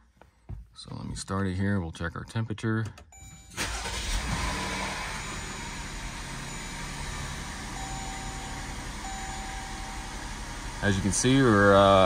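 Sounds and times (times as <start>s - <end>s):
car engine idling: 3.6s - 12.0s.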